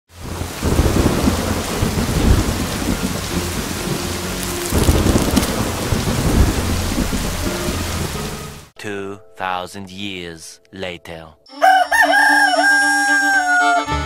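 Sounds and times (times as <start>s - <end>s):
steady rain falling: 0.1s - 8.7s
low thunder rumbling: 0.2s - 8.4s.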